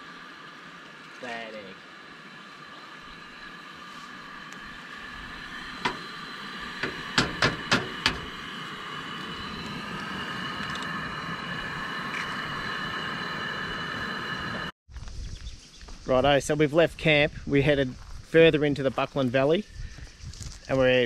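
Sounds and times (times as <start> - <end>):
gas burner hissing: 0.0 - 14.8.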